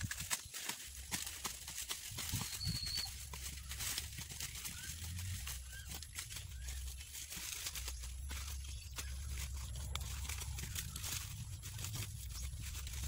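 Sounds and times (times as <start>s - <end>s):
corn stalks snapping: 0.0s - 13.0s
dry corn leaves rustling: 0.0s - 13.0s
bird calling: 2.2s - 13.0s
low steady rumble: 3.1s - 13.0s.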